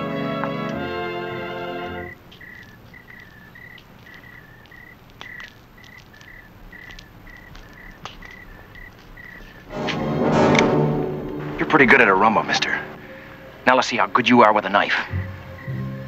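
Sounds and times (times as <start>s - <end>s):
crickets chirping: 1.8s - 16.0s.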